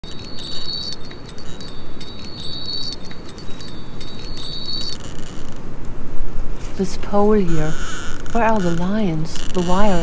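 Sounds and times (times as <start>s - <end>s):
high-pitched ringing tones: 0.0s - 5.5s
low rumbling hiss: 0.2s - 10.0s.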